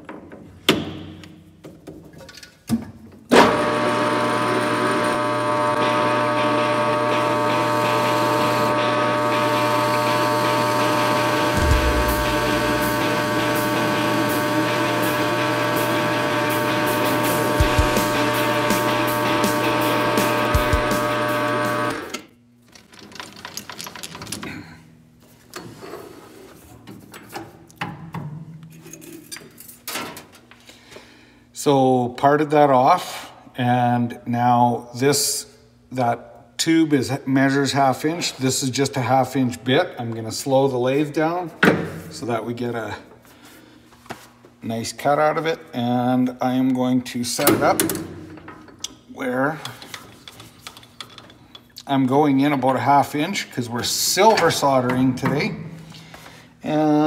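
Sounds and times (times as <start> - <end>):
lathe tool cutting metal: 3.4 - 22.0
metal lathe whining: 3.4 - 22.0
sharp knocks: 11.6 - 13.6
metal parts and tools clinking: 22.7 - 24.6.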